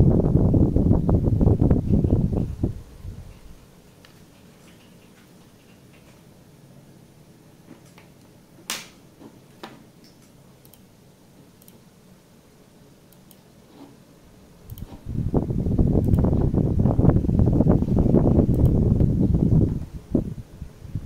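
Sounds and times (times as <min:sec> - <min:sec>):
faint steady hum: 0:00.0 - 0:21.0
computer mouse clicking: 0:10.1 - 0:10.9, 0:11.6 - 0:11.8, 0:13.1 - 0:13.9, 0:14.7 - 0:15.0, 0:16.0 - 0:16.3, 0:18.5 - 0:18.8.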